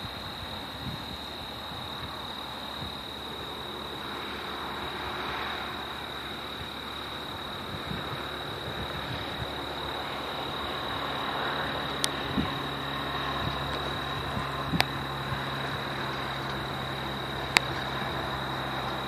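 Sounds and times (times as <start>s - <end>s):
high-pitched whine: 0.0s - 19.0s
low hum: 0.0s - 19.0s
steady hiss: 0.0s - 19.0s.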